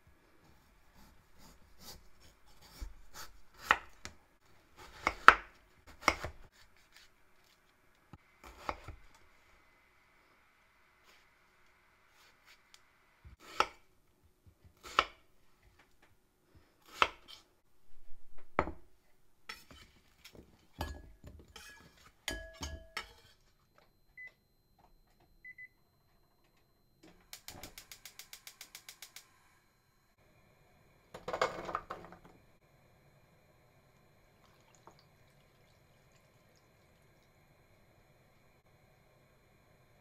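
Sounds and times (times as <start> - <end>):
knife chopping on cutting board: 4.8 - 6.4
short beeps: 23.7 - 26.9
chunks tumbling into frying pan: 31.2 - 32.3.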